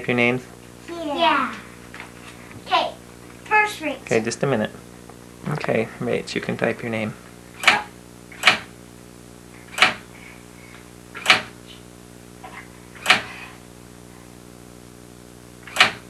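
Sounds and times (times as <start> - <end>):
steady low hum: 0.0 - 16.0
typewriter keystroke clacks: 15.7 - 16.0.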